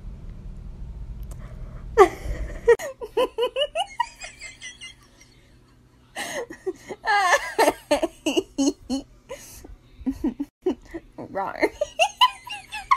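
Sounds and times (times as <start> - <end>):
person laughing: 2.0 - 5.6, 6.2 - 11.0, 11.7 - 12.9.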